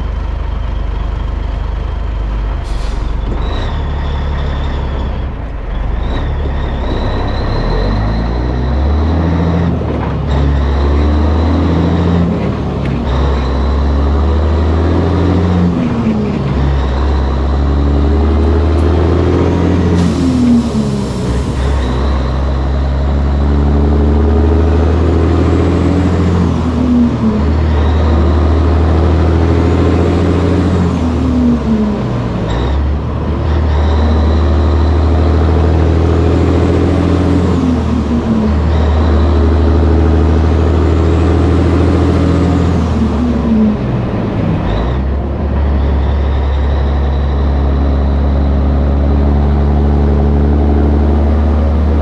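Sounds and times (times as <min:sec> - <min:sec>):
diesel truck engine under load: 0:00.0 - 0:52.0.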